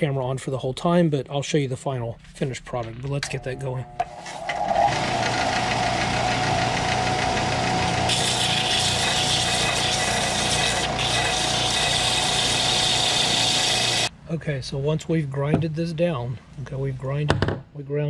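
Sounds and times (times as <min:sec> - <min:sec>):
belt sander motor humming: 0:04.2 - 0:14.1
plastic grinding on sanding belt: 0:04.9 - 0:14.1.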